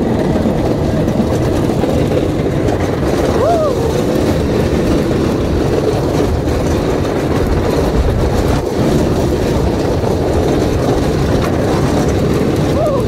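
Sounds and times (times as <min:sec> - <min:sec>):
roller coaster wheels rumbling on rails: 0:00.0 - 0:13.0.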